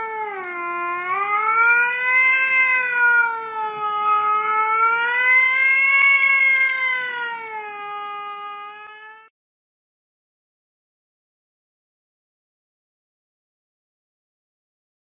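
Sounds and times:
cat meowing: 5.2 - 9.3.

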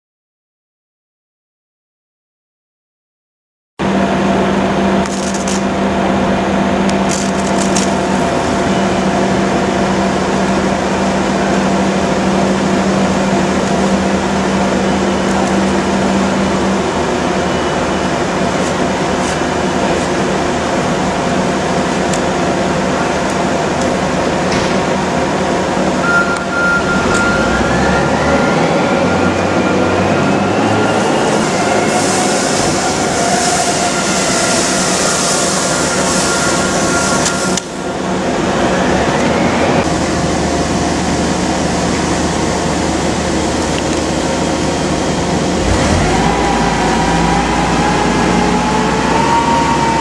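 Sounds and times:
loud machinery noise: 3.8 - 50.0
rising whine: 3.8 - 50.0.

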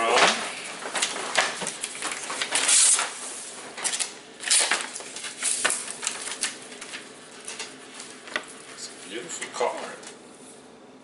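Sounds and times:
paper rustling and crinkling: 0.1 - 8.9.

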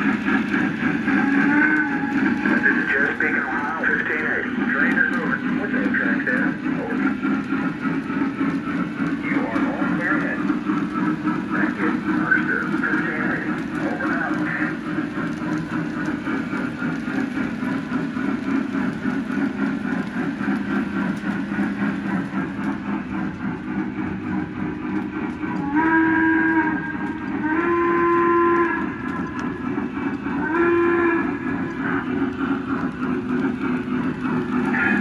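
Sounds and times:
model train rumbling on track: 0.0 - 35.0
steam whistle blasts: 25.6 - 28.9, 30.4 - 31.4.

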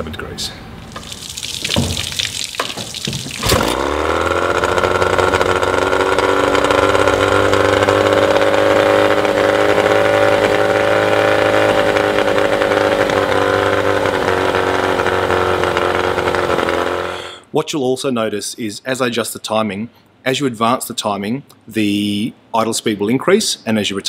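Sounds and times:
pull cord cranking rattle: 3.4 - 8.0
outboard motor idling: 3.4 - 17.4.

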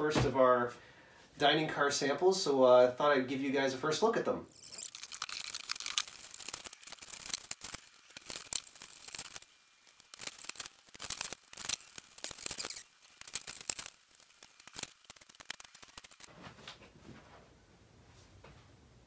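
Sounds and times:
plastic wrapping crinkling: 4.5 - 16.3.

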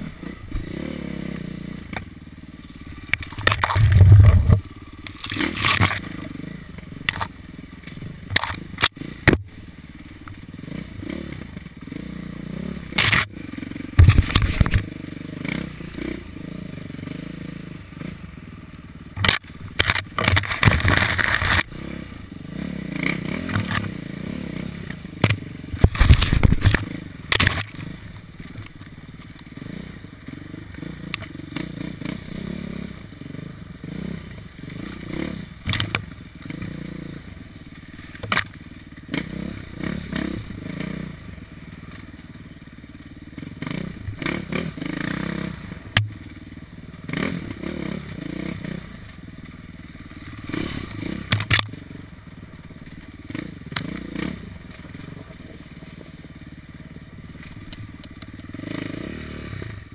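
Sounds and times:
dirt bike engine revving: 0.0 - 59.9
bike knocking over ground: 13.9 - 14.9.

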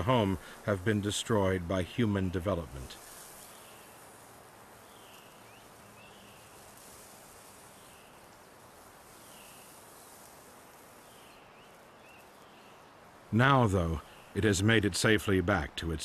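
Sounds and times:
quiet chirps: 0.0 - 15.4
soft steady hiss: 0.0 - 16.0.

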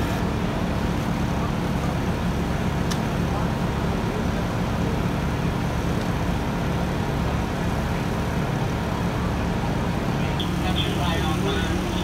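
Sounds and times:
fire truck engine idling: 0.0 - 12.0.

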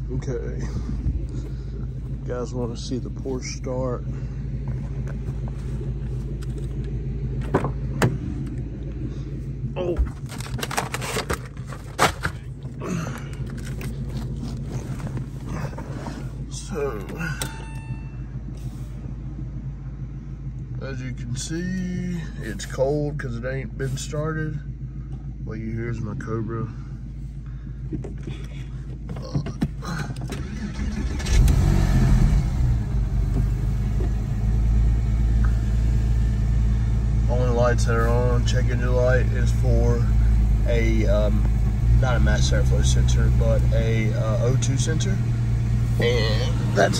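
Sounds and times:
car engine idling: 0.0 - 46.9
knocks and scrapes: 10.0 - 16.4.

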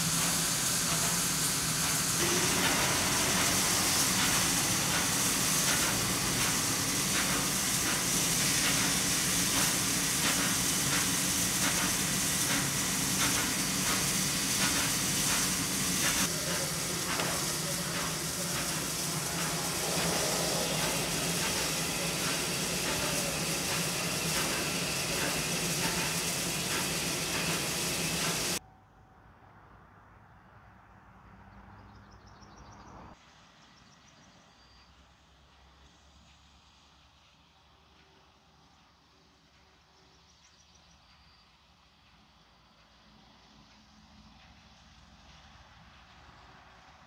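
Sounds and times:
steam hissing: 0.0 - 28.6.

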